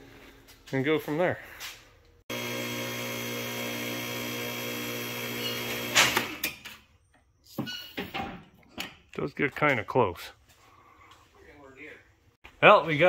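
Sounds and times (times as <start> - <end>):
hydraulic pump motor humming: 2.3 - 6.4.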